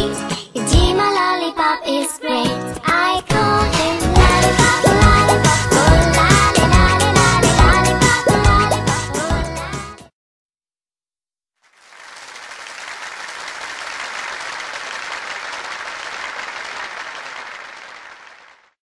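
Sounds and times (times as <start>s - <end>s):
crowd applauding: 11.7s - 18.8s.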